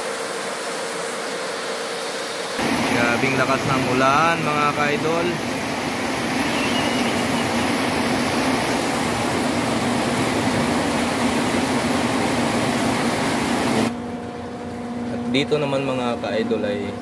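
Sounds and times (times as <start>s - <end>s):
heavy rain pouring: 2.6s - 13.9s.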